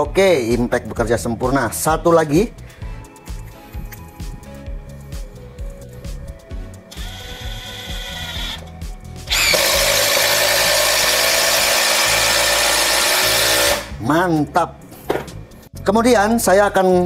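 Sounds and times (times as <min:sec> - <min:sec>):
impact wrench motor whine: 0:06.9 - 0:08.6, 0:09.3 - 0:14.0
impact wrench hammering: 0:09.3 - 0:14.0.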